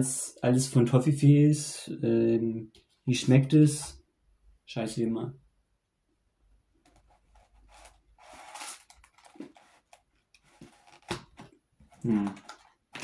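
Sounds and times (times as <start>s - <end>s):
soft handling rustles: 6.8s - 13.0s.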